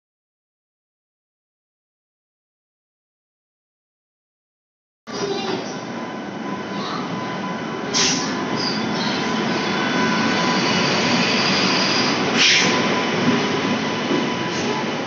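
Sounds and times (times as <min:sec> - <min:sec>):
train wheels rumbling on rail: 0:05.1 - 0:15.0.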